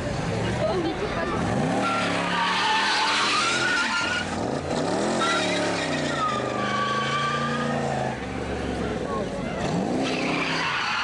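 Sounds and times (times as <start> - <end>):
car engine revving: 0.0 - 11.0
tyres squealing: 1.4 - 8.1, 9.4 - 11.0.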